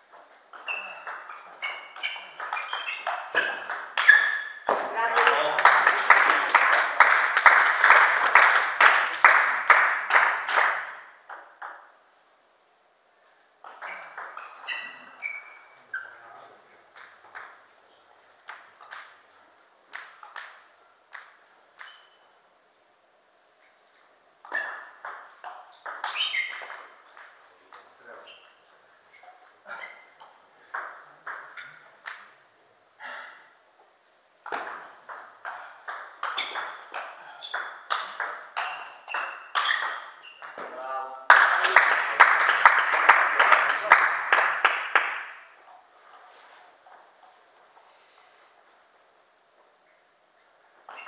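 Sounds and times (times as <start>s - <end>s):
table tennis ball pinging: 0.5s - 4.9s, 10.8s - 11.9s, 13.6s - 16.1s, 16.9s - 17.7s, 24.4s - 28.6s, 29.9s - 32.4s, 34.4s - 40.7s.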